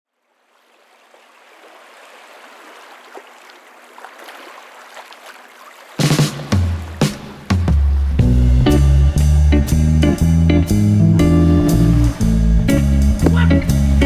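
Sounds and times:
gently moving sea water: 0.1 - 8.2
music with low bass notes: 8.0 - 14.0.

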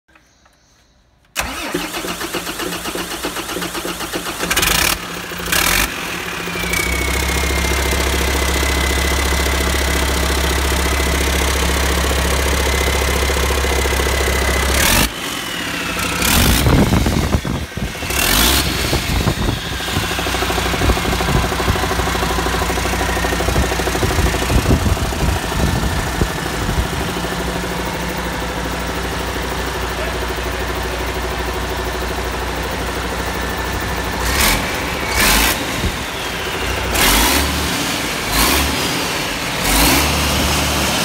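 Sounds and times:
starter motor cranking: 1.4 - 5.9
diesel engine idling and revving: 1.4 - 41.0
high engine whine: 4.8 - 41.0.

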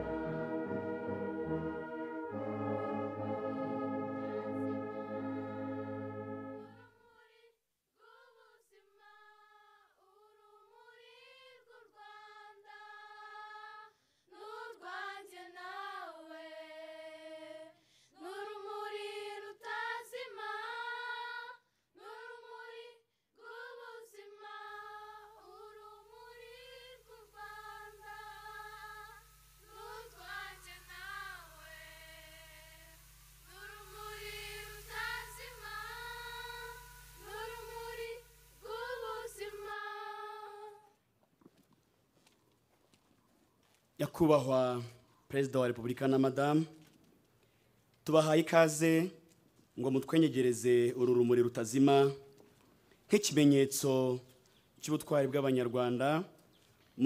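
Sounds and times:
held brass-like chord: 0.0 - 6.8
faint low hum: 0.0 - 7.5, 23.1 - 57.0
high voice singing slow melody: 24.6 - 40.8.

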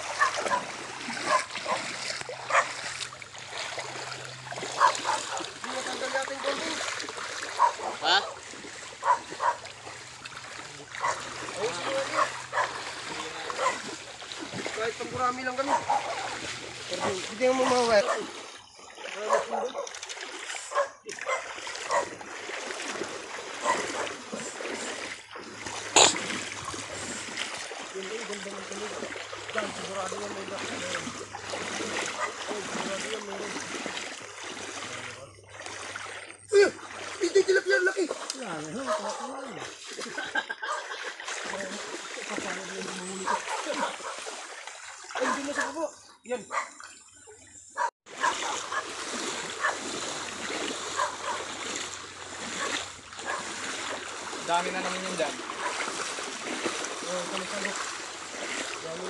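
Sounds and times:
water sloshing as people wade: 0.0 - 59.0.

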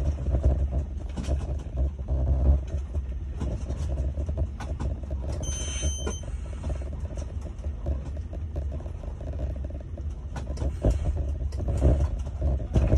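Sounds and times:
train running rumble: 0.0 - 12.9
wheels on rails: 0.0 - 12.9
short high electronic beep: 5.4 - 6.2.

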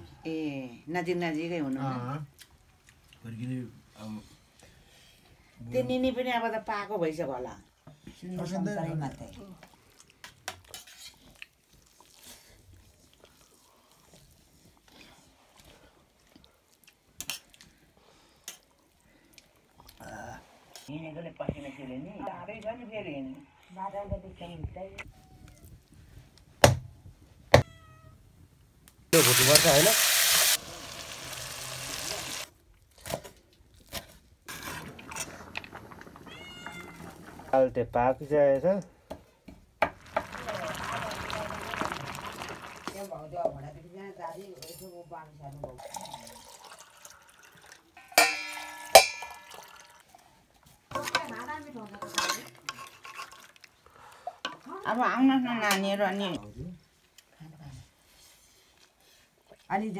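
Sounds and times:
food sizzling in a pot: 29.1 - 32.5, 34.5 - 38.3, 39.8 - 43.3, 48.0 - 53.6
person speaking: 29.2 - 30.0
metal kitchenware knocking: 48.0 - 49.7.

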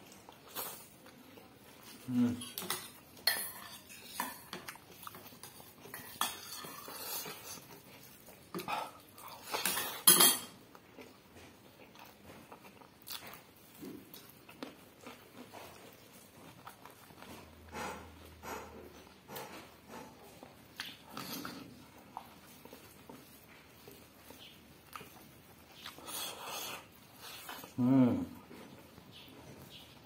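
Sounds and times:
cutlery clinking on plates: 2.4 - 7.6, 9.3 - 10.6.

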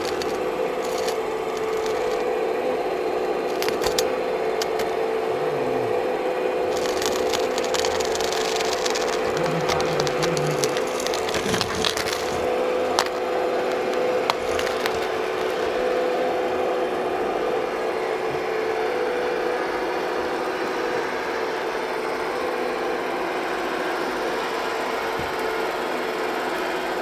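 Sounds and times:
hydraulic pump whine: 0.0 - 27.0
bucket scraping through gravel: 6.7 - 15.7
stone clicks: 6.7 - 15.7.

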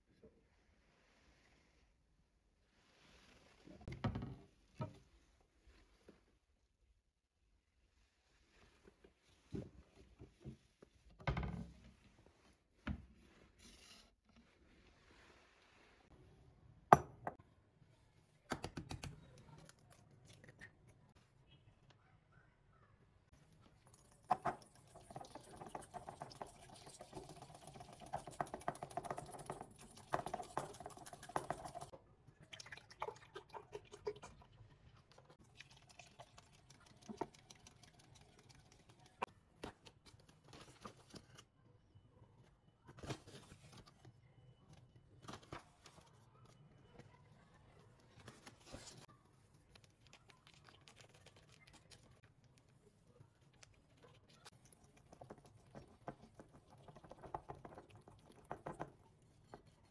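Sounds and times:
whisk beating in a glass bowl: 24.3 - 31.9.

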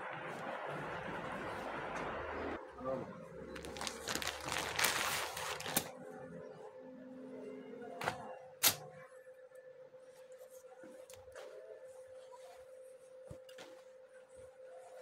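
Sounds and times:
plastic packaging crinkling: 3.6 - 5.9.

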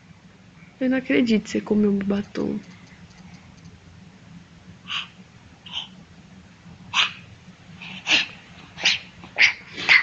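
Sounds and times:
dog barking: 6.9 - 7.3.

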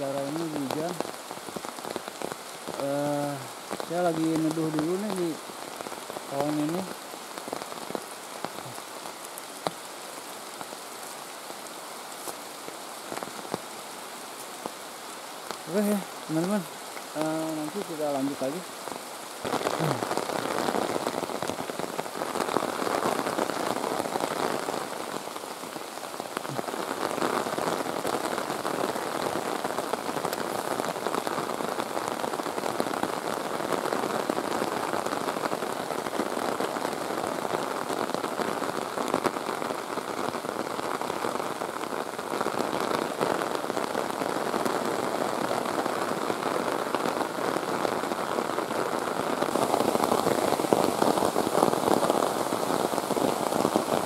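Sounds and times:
heavy rain on foliage: 0.0 - 54.0.

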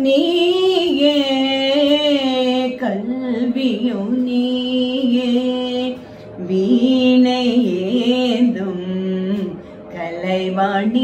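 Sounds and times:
woman singing devotional song: 0.0 - 11.0
breath: 6.0 - 6.4.

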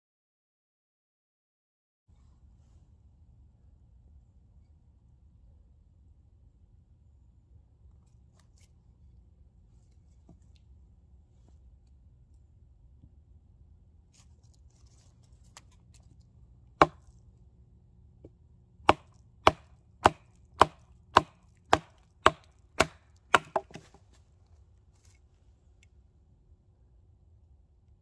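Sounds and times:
wooden baton striking knife: 18.9 - 23.9.

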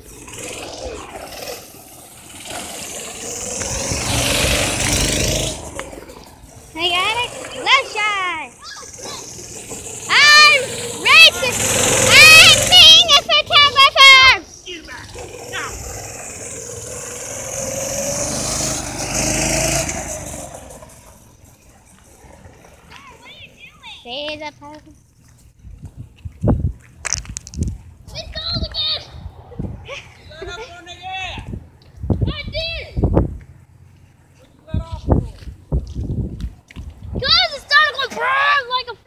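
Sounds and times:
go-kart engine running: 0.0 - 23.8.

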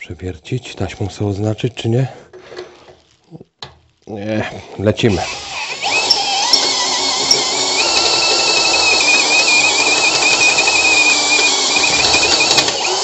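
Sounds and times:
drill scraping through metal: 5.0 - 13.0
electric drill high whine: 5.2 - 13.0.

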